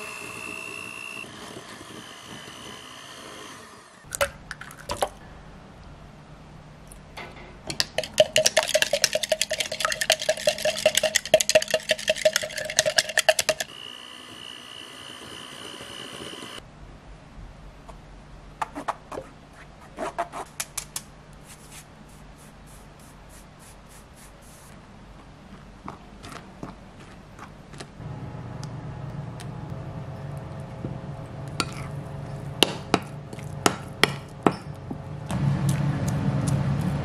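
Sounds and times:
sieve knocking: 7.3 - 13.7
utensil beating eggs in plastic jug: 7.7 - 13.7.

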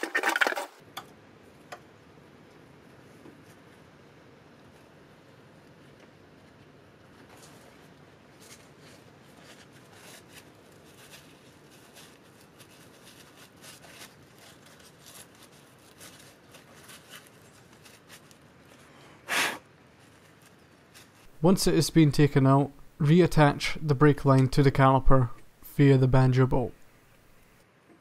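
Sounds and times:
clicks and rustles of gloved hands: 2.5 - 18.9, 19.7 - 21.5.

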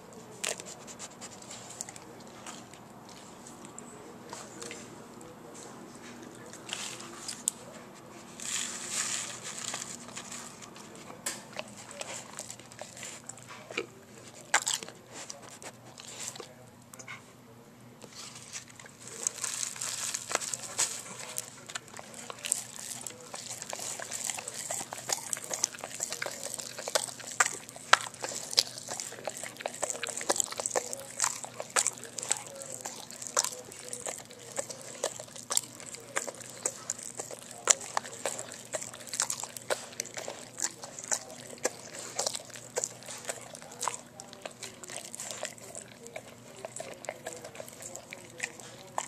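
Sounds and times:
dog licking and chewing: 0.0 - 17.3, 18.0 - 49.0
candy packet crinkling: 18.4 - 49.0
popping candy crackles: 18.6 - 49.0.

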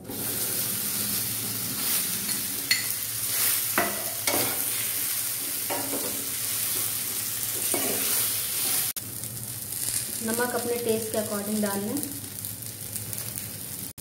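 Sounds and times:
food sizzling in hot oil: 0.0 - 14.0
steel spoon scraping a pan: 0.9 - 7.0, 7.6 - 8.9.

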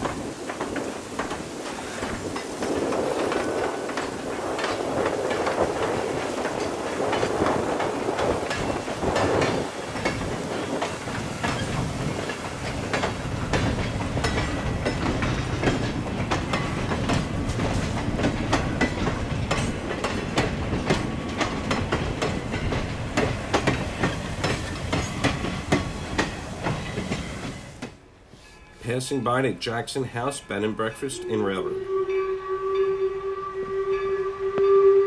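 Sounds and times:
train wheels clacking over rail joints: 0.0 - 28.0
train rumble: 0.0 - 35.0.

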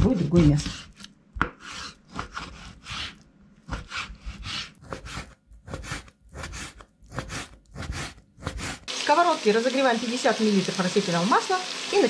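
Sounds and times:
knife slicing meat: 0.1 - 8.9.

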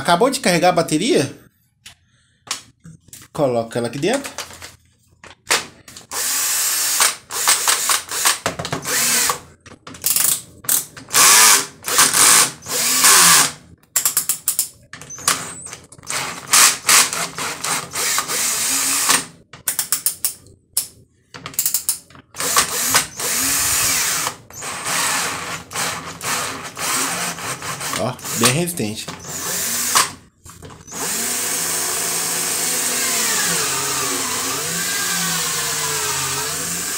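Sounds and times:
drill clutch ratcheting: 6.1 - 9.4, 10.0 - 20.4, 21.5 - 30.2
cordless drill motor spinning up: 6.2 - 9.4, 11.2 - 13.5, 16.1 - 19.2, 22.4 - 28.5, 29.2 - 30.2, 30.8 - 36.9.

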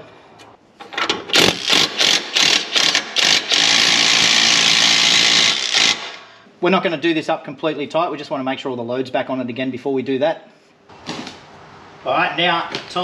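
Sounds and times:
power tool running a nut: 1.3 - 6.3.

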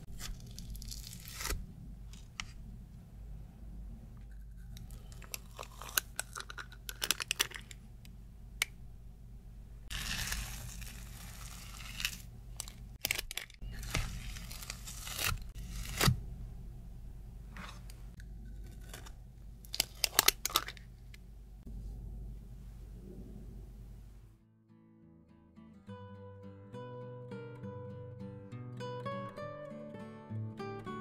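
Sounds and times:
metal scoop scraping frozen sorbet: 9.9 - 12.8, 13.6 - 16.1.

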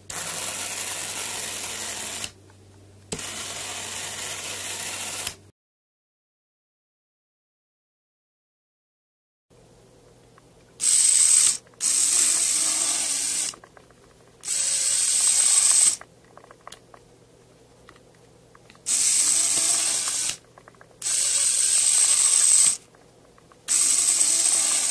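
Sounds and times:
model locomotive motor whirring: 0.1 - 2.3, 3.2 - 5.4, 10.8 - 13.6, 14.4 - 16.0, 18.8 - 20.4, 21.0 - 22.9, 23.6 - 24.9.

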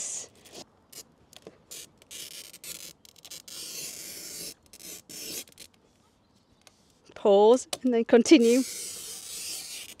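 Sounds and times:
glass cutter scoring glass: 1.7 - 5.8, 8.3 - 10.0.

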